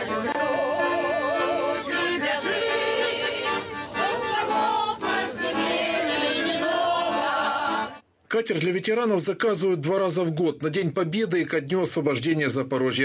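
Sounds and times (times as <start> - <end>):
button accordion playing chords: 0.0 - 8.0
group of people singing along: 0.0 - 8.0.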